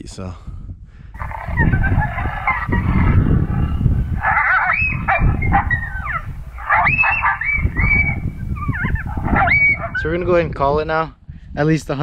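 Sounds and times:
low rumble: 1.2s - 10.0s
coyote howls and yips: 1.2s - 10.2s.

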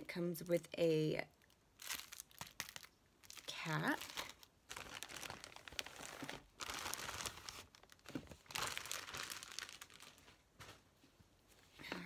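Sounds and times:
plastic packaging crinkling: 1.4s - 10.8s.

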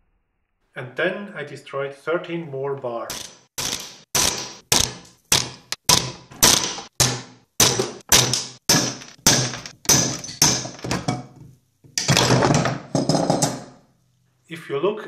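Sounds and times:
plastic bars snapping: 3.1s - 10.9s.

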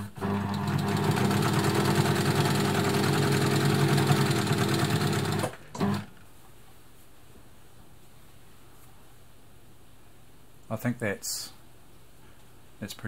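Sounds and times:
sewing machine running: 0.0s - 6.1s.

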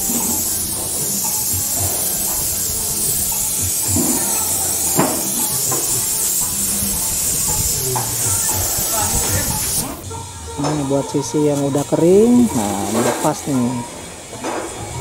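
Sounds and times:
paint spray gun hissing: 0.0s - 10.0s.

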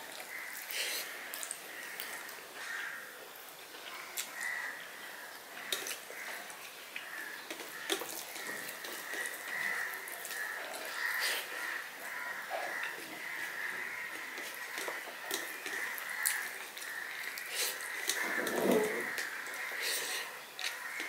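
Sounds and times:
chewing: 5.6s - 21.0s
fingers mixing food on steel plate: 7.0s - 12.2s, 12.8s - 21.0s.

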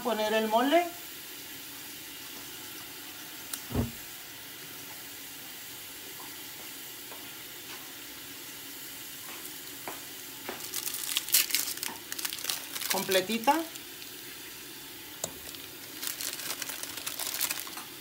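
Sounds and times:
short knock: 3.7s - 4.0s.

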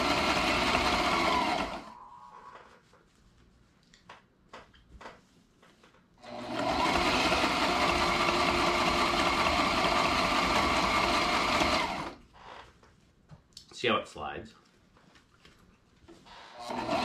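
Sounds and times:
sewing machine stitching: 0.0s - 2.0s, 6.2s - 12.2s, 16.5s - 17.0s.

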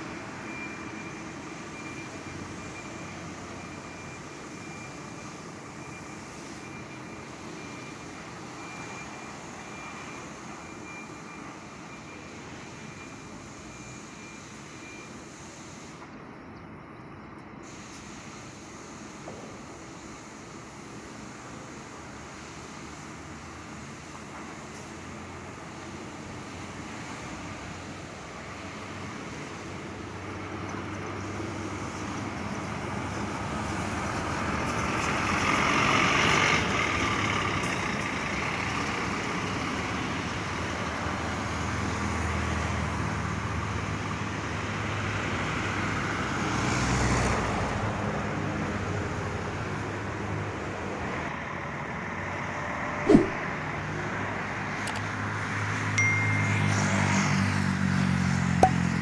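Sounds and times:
bus engines running: 0.0s - 59.0s
sharp knock: 53.1s - 53.4s.

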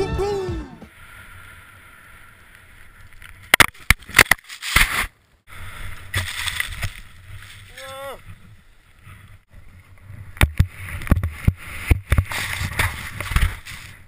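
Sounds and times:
music: 0.0s - 0.9s
wind: 0.0s - 14.0s
camera knocking on snow: 10.4s - 13.5s.

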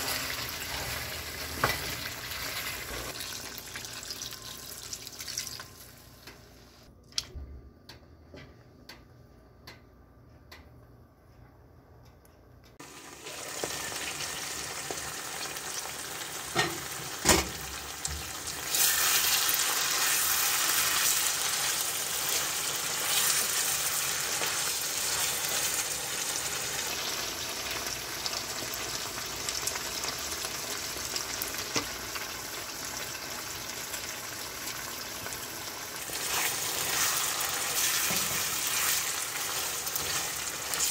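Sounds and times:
meat sizzling in a pan: 12.8s - 40.9s.

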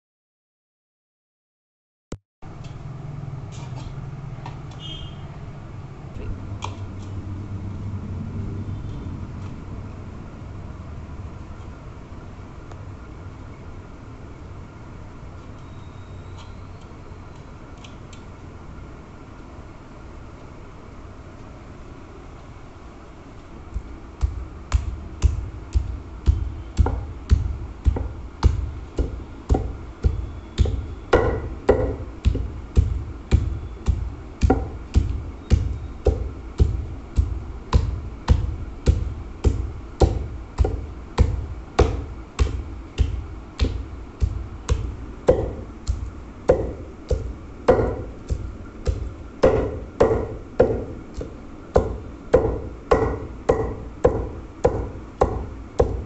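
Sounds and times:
wooden pestle pounding in stone mortar: 23.7s - 56.0s.

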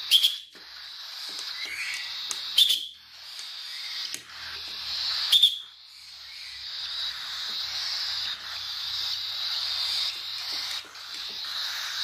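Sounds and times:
chicks hissing begging calls: 0.0s - 12.0s
hand whistle blasts: 0.1s - 0.5s, 2.6s - 2.9s, 5.3s - 5.6s.

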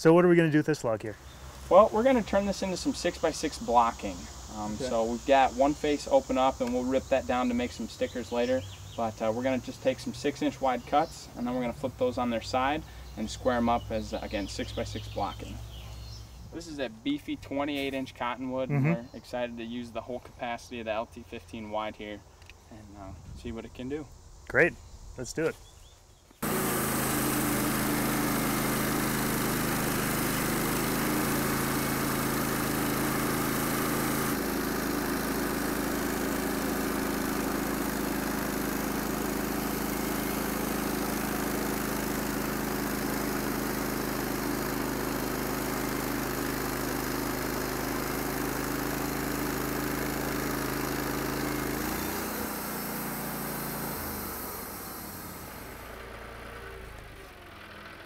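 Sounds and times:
bandsaw cutting a log: 1.7s - 15.5s, 26.4s - 58.0s.

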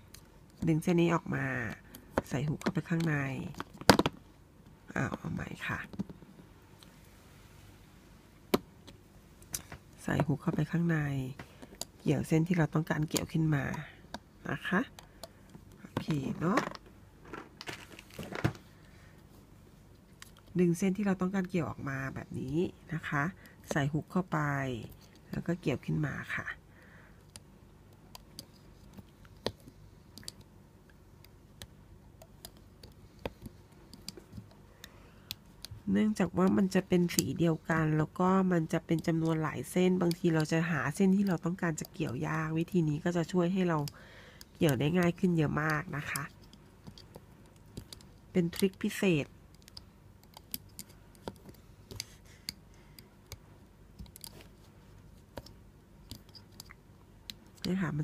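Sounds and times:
loom hook and rubber bands clicking: 27.2s - 54.5s, 55.3s - 58.0s
small clicks of loom hook and rubber bands: 43.8s - 54.5s.

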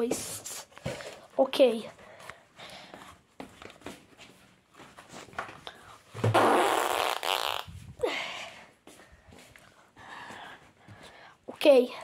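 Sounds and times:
fart noise: 6.2s - 7.9s.

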